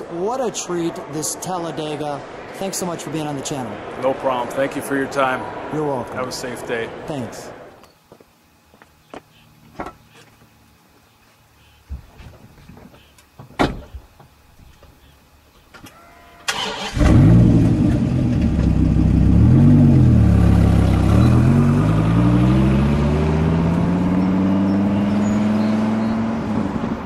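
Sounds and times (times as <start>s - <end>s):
car accelerating away: 16.5s - 27.0s
car engine starting and revving: 16.5s - 27.0s.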